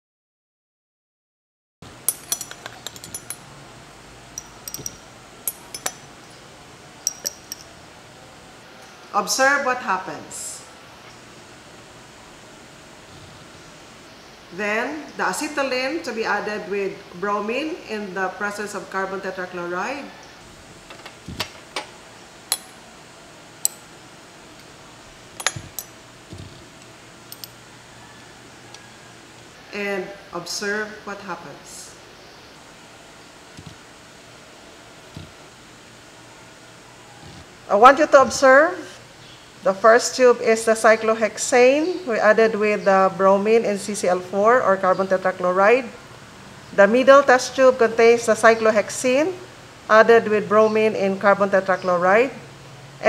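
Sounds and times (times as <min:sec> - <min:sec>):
low room hiss: 0:01.8 - 0:53.0
glass labware clinking: 0:02.1 - 0:03.5, 0:04.4 - 0:06.4, 0:07.1 - 0:07.7, 0:25.4 - 0:26.0, 0:27.3 - 0:27.6.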